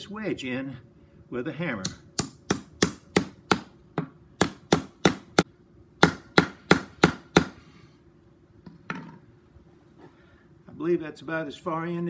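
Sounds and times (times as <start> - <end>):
hammer knocking wooden wedge: 1.8 - 5.4, 6.0 - 7.6.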